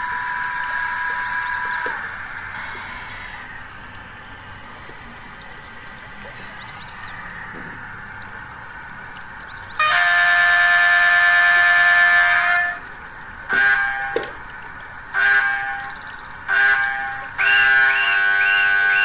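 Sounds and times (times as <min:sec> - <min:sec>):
model locomotive horn blasts: 0:00.0 - 0:03.4, 0:09.8 - 0:14.4, 0:15.1 - 0:19.0
locomotive running sound: 0:00.0 - 0:19.0.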